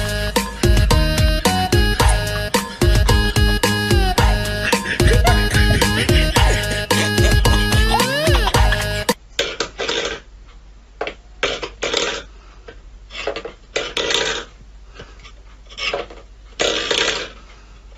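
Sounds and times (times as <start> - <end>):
music: 0.0 - 9.2.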